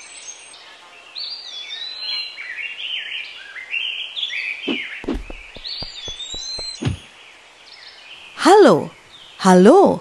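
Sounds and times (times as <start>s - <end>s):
birds chirping: 1.3s - 10.0s
cartoon footstep thuds: 4.7s - 7.1s.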